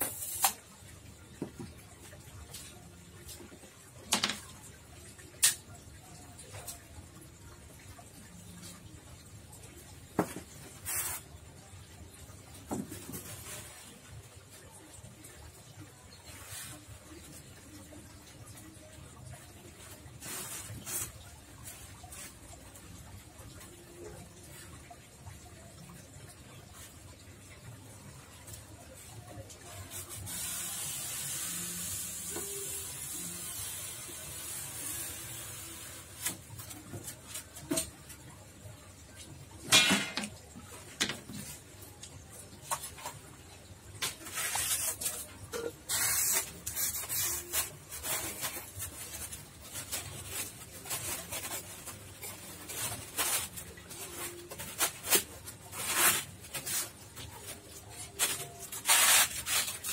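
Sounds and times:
foam sheets scraping: 0:10.2 - 0:11.4, 0:20.2 - 0:21.2, 0:44.0 - 0:59.9
steady hiss: 0:29.9 - 0:36.3.

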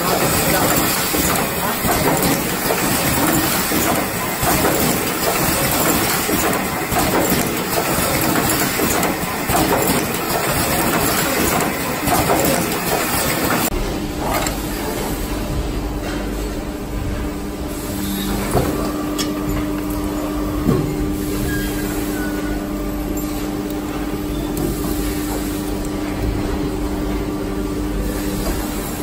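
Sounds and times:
crimping machine clattering: 0:00.0 - 0:13.7
machine knocks and hiss: 0:00.0 - 0:19.7, 0:20.6 - 0:22.5, 0:23.3 - 0:27.3, 0:28.0 - 0:29.0.

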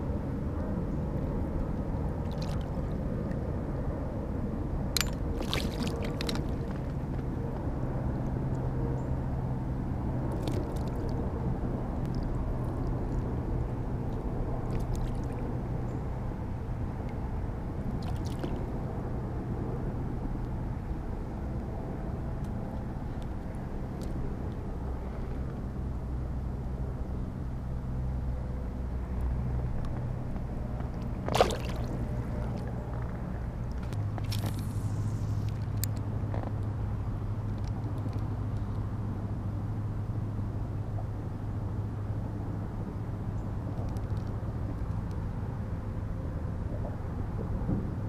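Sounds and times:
fish splashing at water surface: 0:02.2 - 0:03.0, 0:05.0 - 0:06.9, 0:10.3 - 0:11.1, 0:17.9 - 0:18.7, 0:31.2 - 0:32.7.

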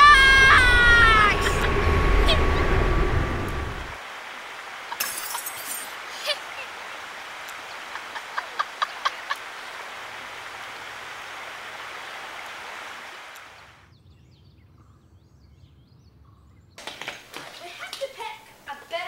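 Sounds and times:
low rumble: 0:00.0 - 0:04.0
steady outdoor noise: 0:00.0 - 0:19.0.

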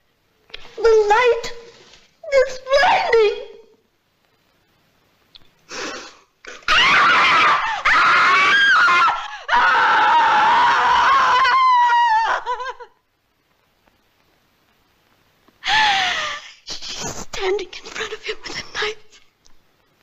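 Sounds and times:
woman screaming: 0:06.5 - 0:12.9.

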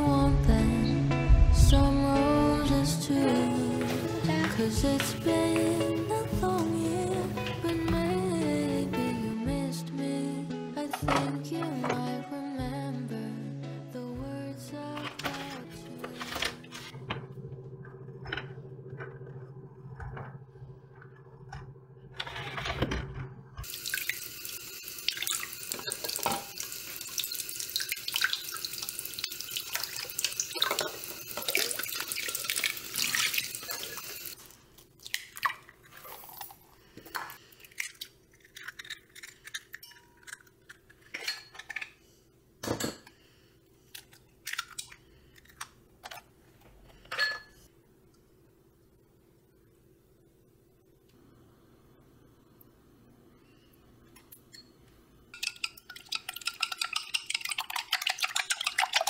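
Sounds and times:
tap water running into bowl: 0:23.6 - 0:34.3.

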